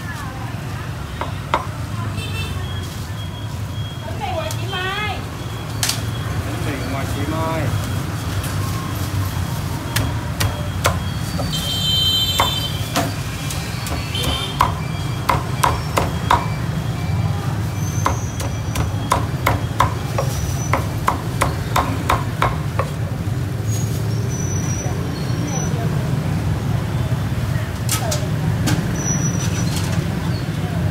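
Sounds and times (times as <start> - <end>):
cleaver chopping on wooden block: 13.8 - 16.5, 18.0 - 23.0.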